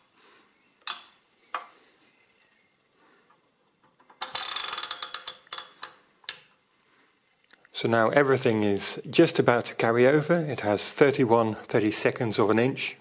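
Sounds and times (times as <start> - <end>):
adding machine wheels clicking: 3.8 - 6.5.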